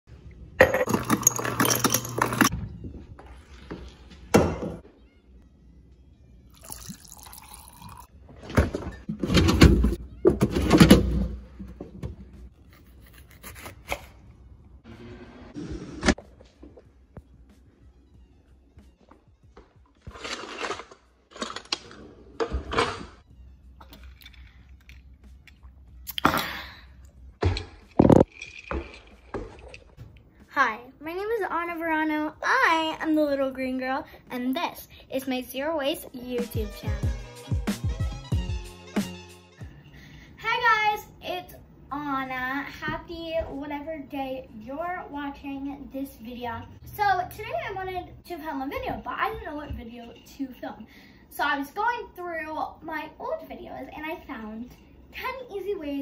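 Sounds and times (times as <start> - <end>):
water running into glass jar: 6.6 - 8.1.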